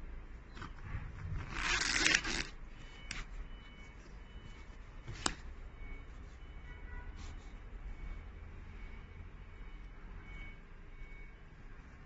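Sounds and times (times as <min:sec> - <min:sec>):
cloth rustling and rubbing: 0:01.2 - 0:08.3.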